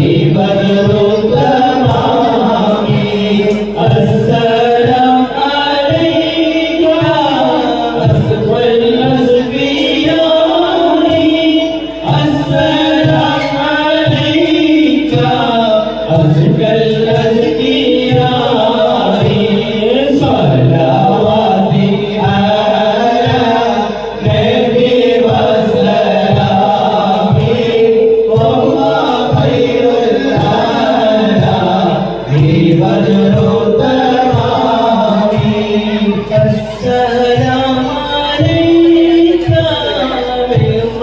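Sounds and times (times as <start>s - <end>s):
men singing in chorus: 0.0s - 41.0s.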